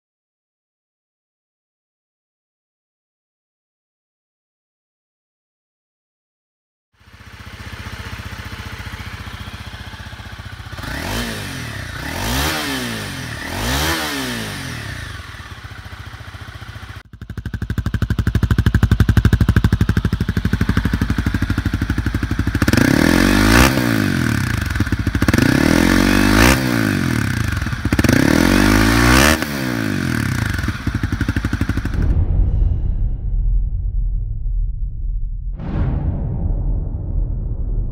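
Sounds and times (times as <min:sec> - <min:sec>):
motorcycle engine idling and revving: 0:07.0 - 0:32.1.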